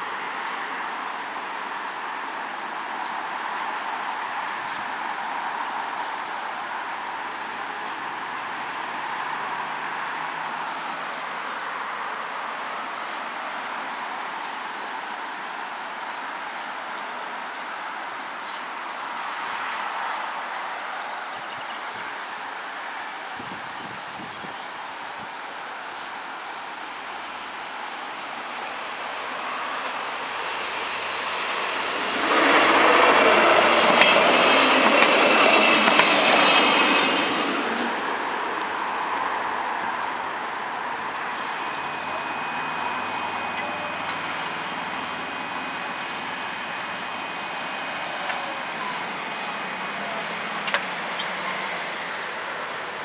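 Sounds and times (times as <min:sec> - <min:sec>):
diesel train passing: 0:26.6 - 0:53.0.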